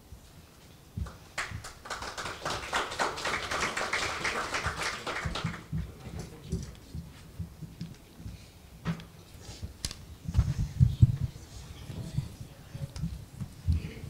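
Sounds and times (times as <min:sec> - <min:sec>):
audience applauding: 0:01.0 - 0:06.4
low thumps: 0:10.2 - 0:14.0.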